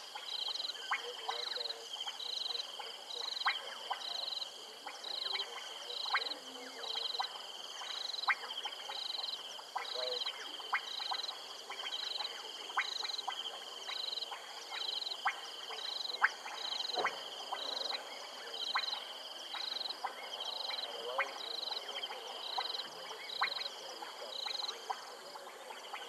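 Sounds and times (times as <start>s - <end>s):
frogs sharp clicking calls: 0.0s - 26.0s
frogs trilling chorus: 0.0s - 26.0s.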